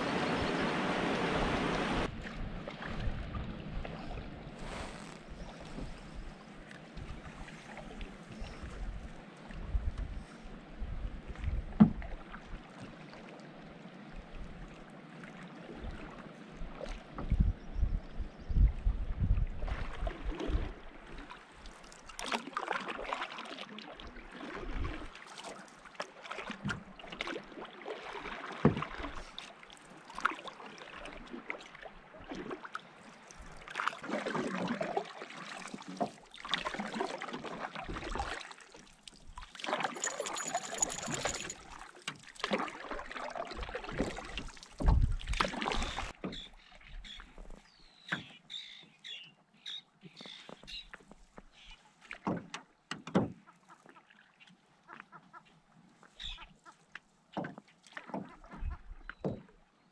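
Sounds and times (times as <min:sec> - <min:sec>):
canoe paddle strokes in water: 0:00.0 - 0:17.7, 0:18.9 - 0:49.2, 0:50.0 - 0:59.9
water splashing and dripping: 0:19.7 - 0:46.5.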